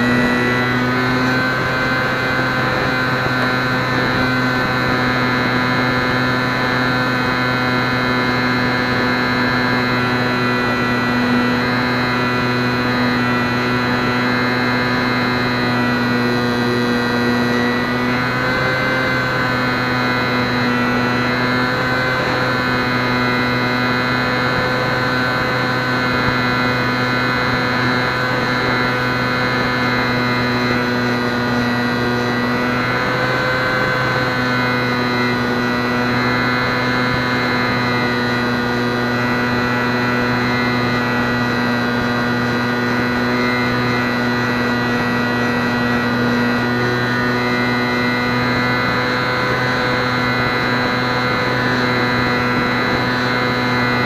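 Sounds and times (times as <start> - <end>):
model plane motor whine: 0.0 - 54.0.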